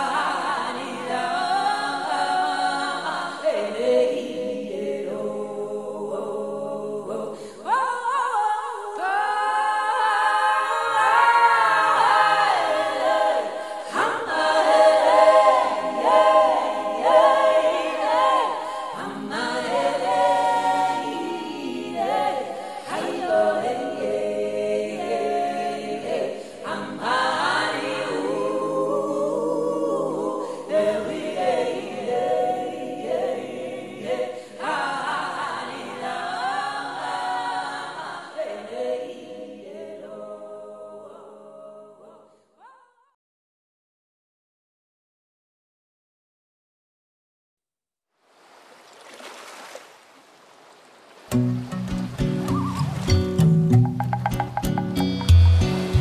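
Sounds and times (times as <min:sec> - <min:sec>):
choir singing unaccompanied: 0:00.0 - 0:42.4.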